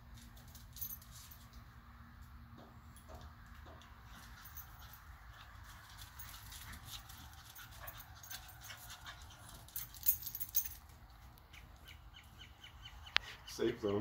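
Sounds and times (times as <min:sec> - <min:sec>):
dog claws clicking on concrete: 0:03.0 - 0:11.3.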